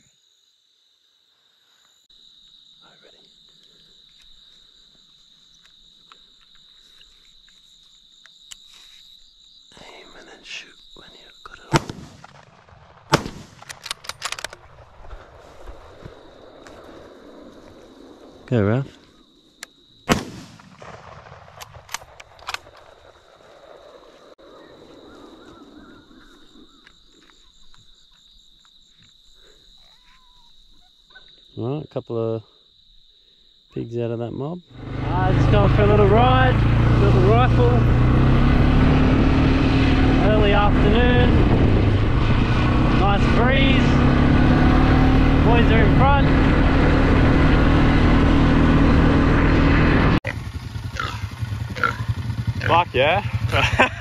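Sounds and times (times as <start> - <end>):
crickets trilling: 0.0 - 12.4, 13.6 - 54.0
faint ticks and rustles: 3.1 - 11.1
sharp clicks: 13.2 - 14.6, 21.6 - 22.9.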